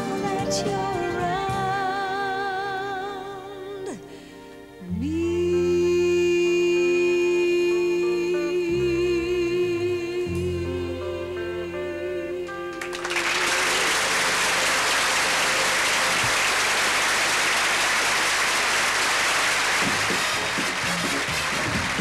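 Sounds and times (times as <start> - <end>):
woman singing with vibrato: 0.0 - 4.0, 4.8 - 13.0
orchestral backing: 19.8 - 22.0.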